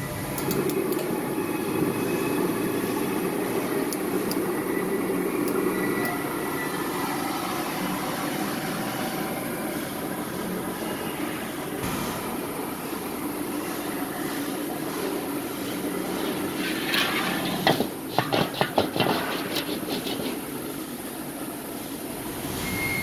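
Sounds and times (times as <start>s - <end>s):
burner blower running: 11.7s - 21.8s.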